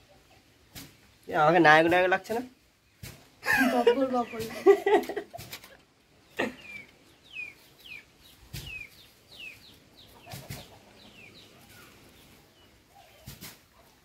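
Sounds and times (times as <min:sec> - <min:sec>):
bird chirping: 0:03.8 - 0:14.0.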